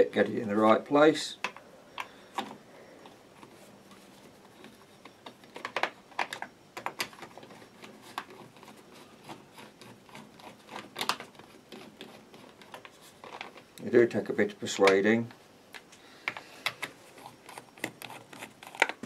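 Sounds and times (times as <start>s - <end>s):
screwdriver clicks and scrapes: 16.3s - 19.0s.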